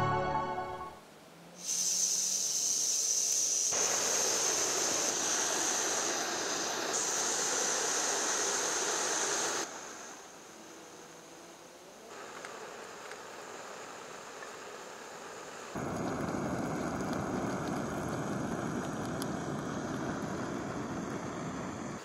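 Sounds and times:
gas stove hissing: 0:01.5 - 0:22.0.

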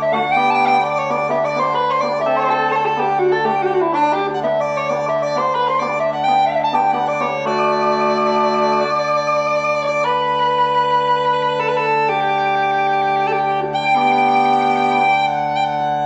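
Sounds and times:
steady drone hum: 0:00.0 - 0:10.4
uilleann pipes melody: 0:00.0 - 0:16.0.

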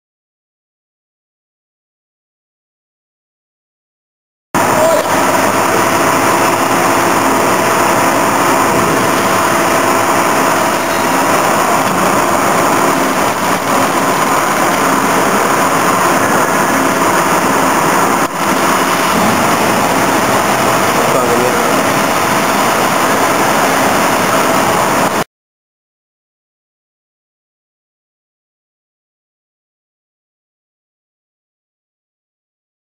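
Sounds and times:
riveting machine whirring: 0:04.6 - 0:25.2.

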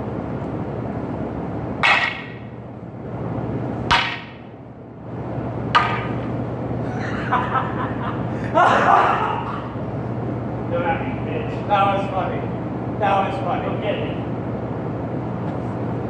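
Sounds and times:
wooden staffs clacking: 0:01.8 - 0:02.5, 0:03.9 - 0:04.5, 0:05.7 - 0:06.4.

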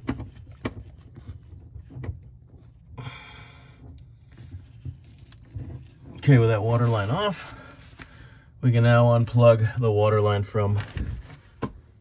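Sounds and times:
knocks and rubbing against pipes: 0:00.0 - 0:03.0, 0:03.6 - 0:07.3.

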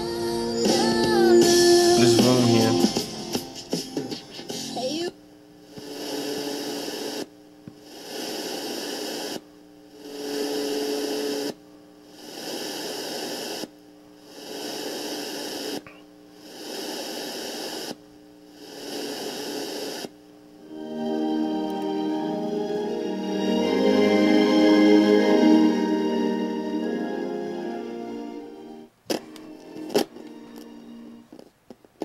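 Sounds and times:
radio static hiss: 0:00.9 - 0:20.6, 0:29.0 - 0:32.0.

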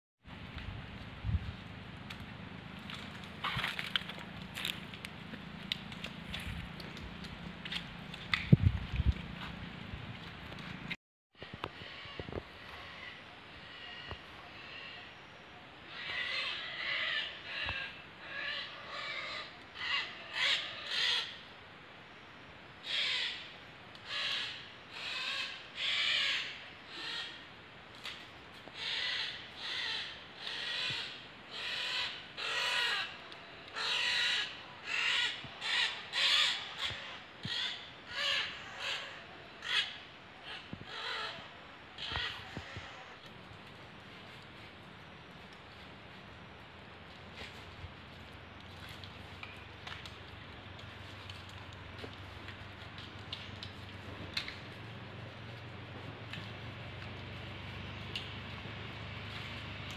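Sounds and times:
parrots screeching: 0:15.9 - 0:21.3, 0:24.1 - 0:27.3, 0:28.8 - 0:33.1, 0:33.8 - 0:43.2.

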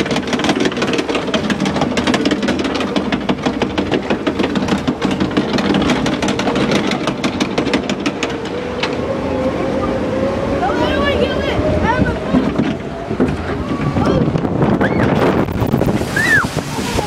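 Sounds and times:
clatter of clicks and knocks: 0:00.0 - 0:09.1
steady mechanical drone: 0:00.0 - 0:17.0.

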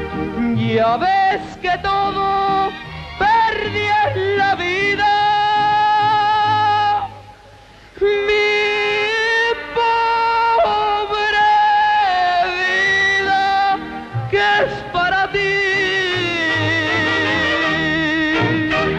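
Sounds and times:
mariachi band playing: 0:00.0 - 0:07.4, 0:12.4 - 0:18.9.

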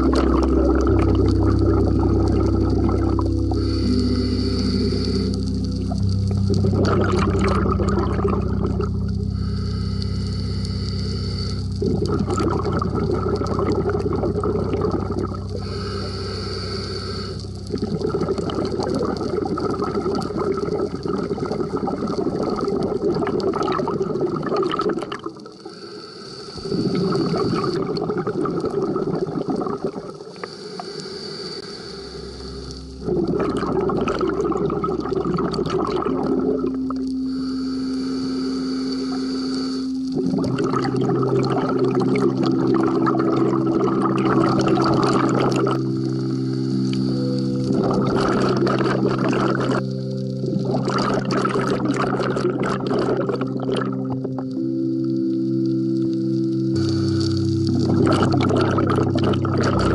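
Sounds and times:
bubbling exhaled air: 0:00.0 - 0:59.9
regulator hiss on inhale: 0:03.2 - 0:06.3, 0:08.7 - 0:12.0, 0:15.3 - 0:20.7, 0:25.2 - 0:28.1, 0:30.1 - 0:33.4, 0:36.9 - 0:40.4, 0:45.4 - 0:50.6, 0:54.6 - 0:57.8.

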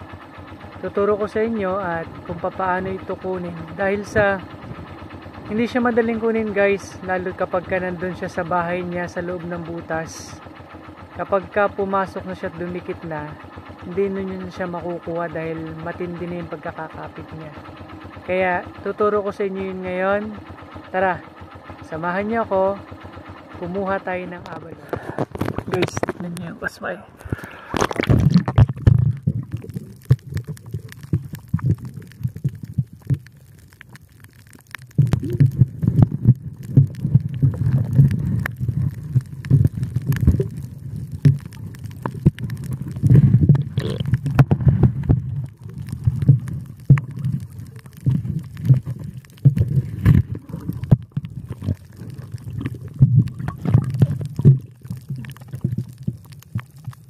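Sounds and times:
underwater rumbling and sloshing: 0:00.0 - 0:18.4, 0:22.5 - 0:57.0
sharp clicks and knocks: 0:24.3 - 0:26.5, 0:27.3 - 0:57.0.

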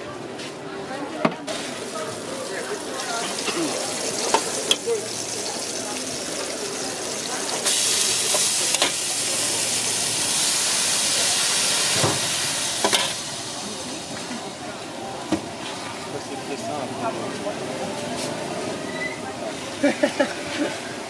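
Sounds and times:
vegetables sizzling in a wok: 0:01.5 - 0:16.6.

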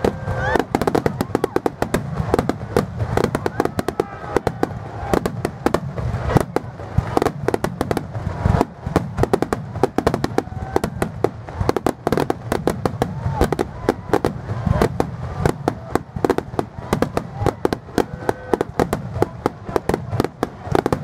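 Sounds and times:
fireworks bangs and crackles: 0:00.0 - 0:21.0.

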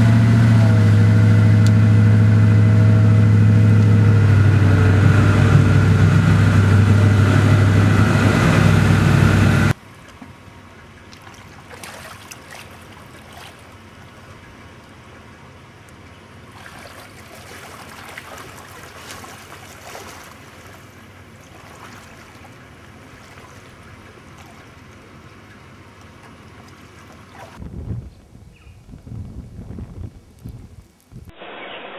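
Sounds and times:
wading through shallow water: 0:09.8 - 0:27.6.

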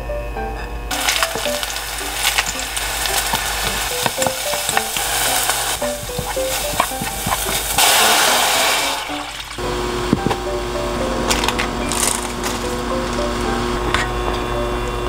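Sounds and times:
food sizzling in oil: 0:00.9 - 0:09.6
water hissing in hot pot: 0:00.9 - 0:09.6
quiet bubbling: 0:09.0 - 0:09.6.

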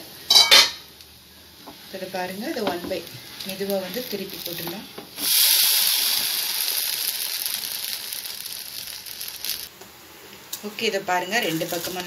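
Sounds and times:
pancake sizzling in hot oil: 0:00.3 - 0:09.7.

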